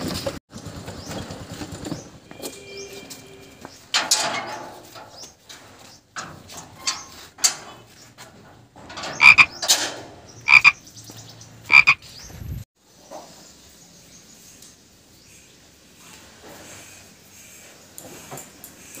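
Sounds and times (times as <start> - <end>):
metal gate bolt clanking: 4.0 - 5.1, 8.8 - 10.2.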